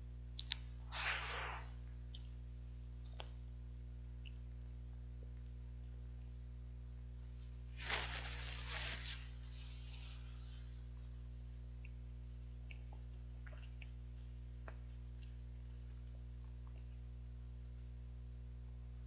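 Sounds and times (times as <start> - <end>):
steady electrical hum: 0.0 - 19.0
wet mouth clicks of chewing: 12.6 - 14.0.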